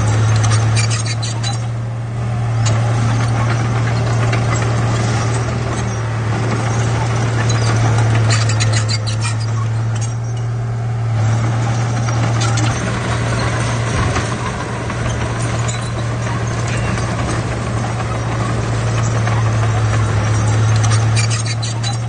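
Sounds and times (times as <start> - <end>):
steel tracks rattling and clanking: 0.0 - 1.9, 2.5 - 22.0
bulldozer diesel engine: 0.0 - 22.0
rocks clanking: 11.4 - 22.0.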